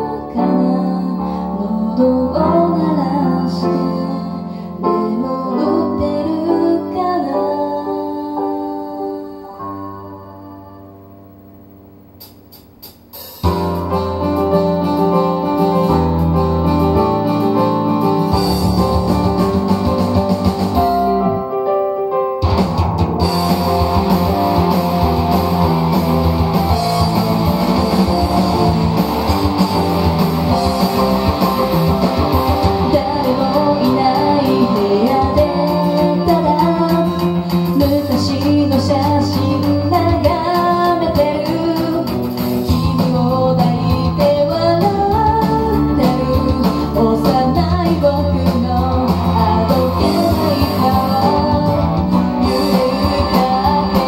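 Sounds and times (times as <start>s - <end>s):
pop-rock band backing track: 0.0s - 9.9s, 12.1s - 54.0s
woman singing: 0.0s - 11.2s, 32.6s - 54.0s.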